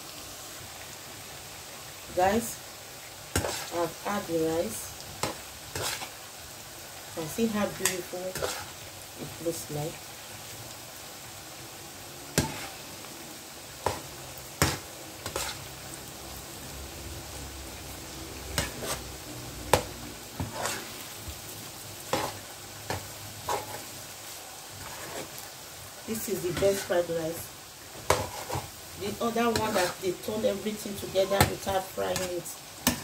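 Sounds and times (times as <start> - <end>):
rice sizzling in a pan: 0.0 - 33.0
metal spoon scraping a pan: 3.4 - 3.8, 5.2 - 6.2, 7.6 - 8.8, 12.4 - 12.8, 13.8 - 15.7, 18.5 - 21.1, 22.1 - 25.5, 26.2 - 27.1, 28.0 - 33.0.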